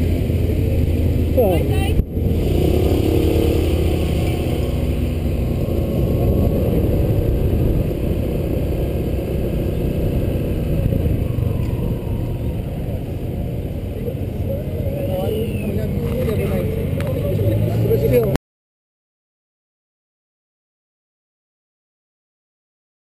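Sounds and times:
scooter engine running: 0:00.0 - 0:18.3
wind rumble on microphone: 0:00.0 - 0:18.4.

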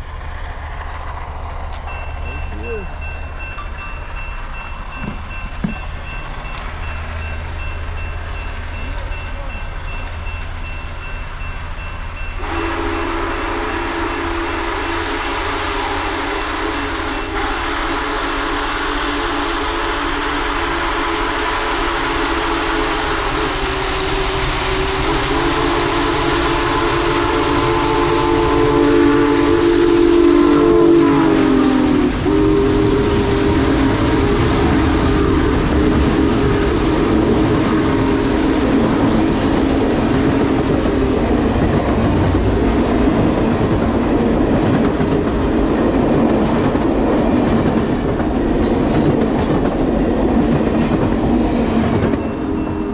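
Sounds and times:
wheels clicking over rail joints: 0:00.0 - 0:10.6
steam locomotive passing: 0:00.0 - 0:52.9
train cars rumbling: 0:00.0 - 0:52.9
chime whistle blowing: 0:01.9 - 0:14.7, 0:51.9 - 0:52.9.

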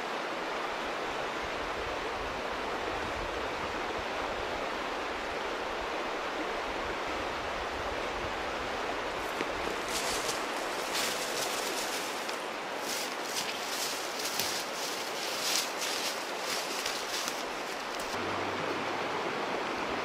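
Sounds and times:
river flowing: 0:00.0 - 0:20.0
brush and leaves rustling: 0:09.1 - 0:18.2.

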